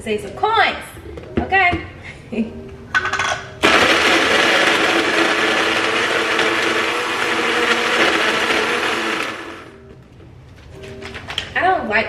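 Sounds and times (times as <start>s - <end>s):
blender crushing ice: 3.6s - 9.8s.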